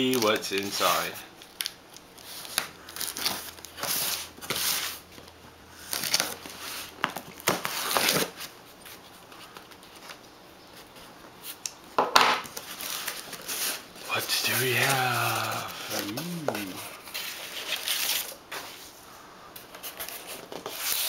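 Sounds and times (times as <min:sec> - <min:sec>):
packing tape peeling and tearing: 0:01.4 - 0:05.0, 0:05.8 - 0:08.5.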